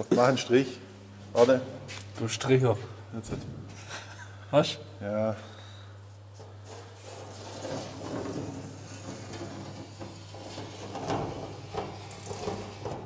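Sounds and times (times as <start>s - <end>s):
steady low hum: 0.0s - 13.0s
rustling and clattering: 6.4s - 13.0s.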